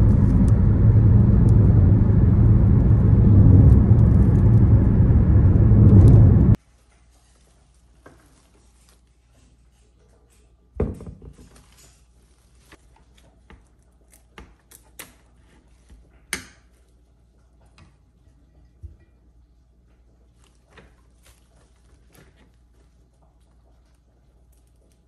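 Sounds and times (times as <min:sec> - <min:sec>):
knocks on countertop: 0:10.8 - 0:11.4.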